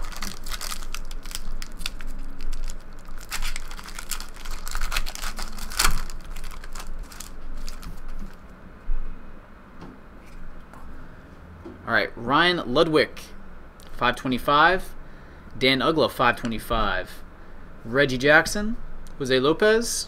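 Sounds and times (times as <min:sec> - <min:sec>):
foil wrapper crinkling and tearing: 0:00.0 - 0:08.4.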